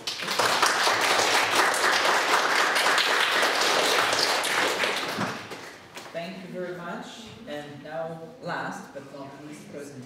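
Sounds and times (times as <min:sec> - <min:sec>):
small group applauding: 0:00.0 - 0:06.1.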